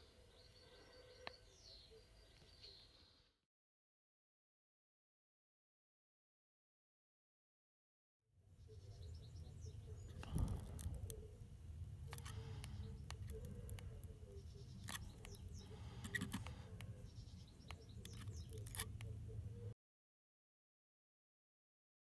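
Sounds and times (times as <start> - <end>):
steady low hum: 8.5 - 19.8.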